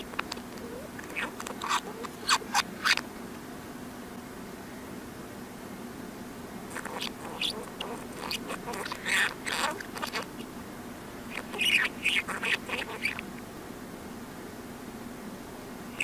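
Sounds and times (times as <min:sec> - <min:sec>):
reversed budgerigar chatter: 0:00.0 - 0:03.1, 0:06.7 - 0:10.6, 0:11.2 - 0:13.3
steady low hum: 0:00.0 - 0:16.0.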